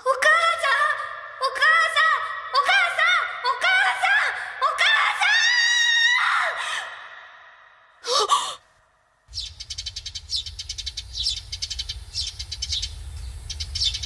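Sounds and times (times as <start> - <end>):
girl's high-pitched cry: 8.0 - 8.6
girl gasping: 8.0 - 8.7
birds chirping: 9.3 - 14.0.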